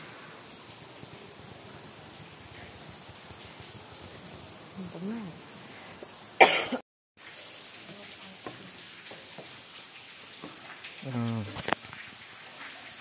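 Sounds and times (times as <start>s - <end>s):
low hiss: 0.0s - 13.0s
person coughing: 6.4s - 6.8s.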